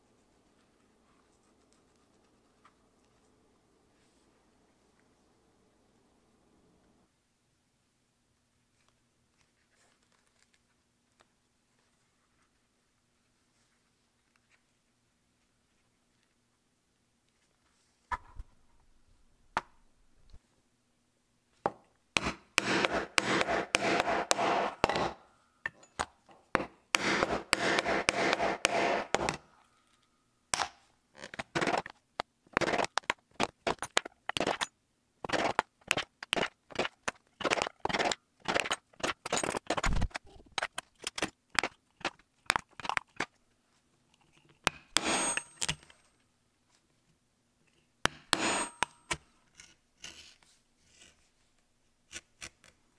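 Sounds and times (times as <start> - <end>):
tool scraping leather: 22.2 - 25.2, 26.5 - 29.5, 35.2 - 40.4, 44.7 - 45.8, 48.1 - 52.8.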